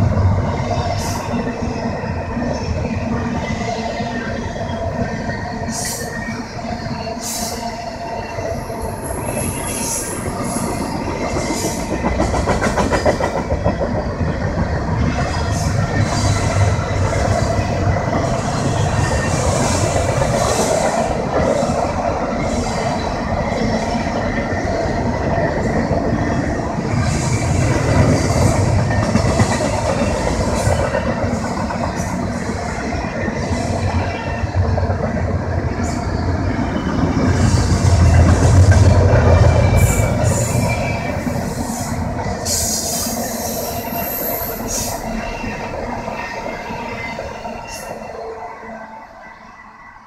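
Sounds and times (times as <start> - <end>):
train rumbling past: 0.0 - 50.0
train wheel clatter: 9.0 - 47.9.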